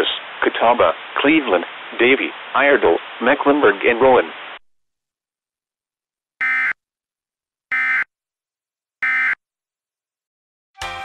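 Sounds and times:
music: 10.8s - 11.0s.

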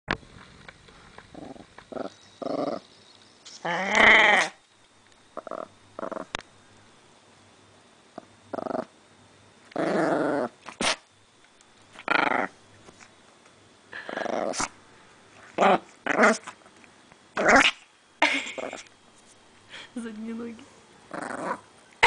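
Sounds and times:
dog growling: 1.3s - 2.8s, 3.6s - 4.6s, 5.4s - 6.4s, 8.2s - 8.9s, 9.7s - 11.0s, 12.0s - 12.6s, 14.0s - 14.8s, 15.4s - 16.6s, 17.4s - 17.8s, 21.1s - 21.7s.

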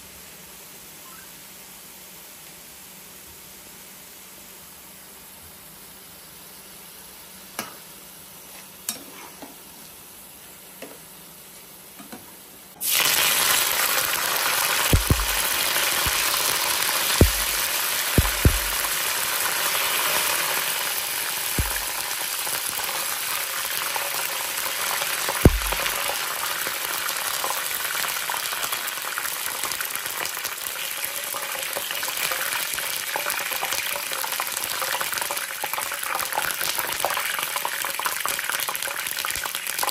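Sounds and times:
faint hiss with light clicks: 0.9s - 3.5s, 14.8s - 19.2s, 21.5s - 23.0s
leaves sizzling in hot oil: 12.8s - 39.9s
metal spoon knocking on pan: 14.9s - 16.3s, 17.2s - 17.6s, 18.2s - 18.9s, 21.6s - 22.0s, 25.5s - 26.0s.

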